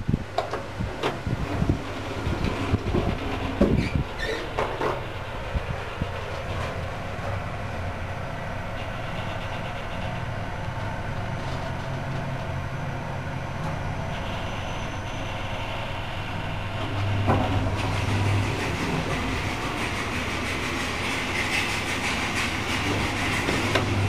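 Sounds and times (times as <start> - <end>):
elevator hum and rumble: 0.0 - 24.0.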